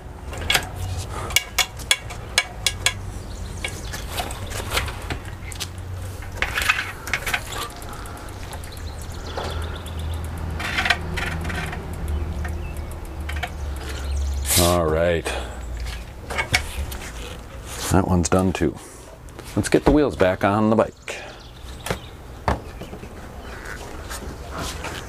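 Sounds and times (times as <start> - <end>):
metallic clicks from bicycle tools: 0.3 - 14.6.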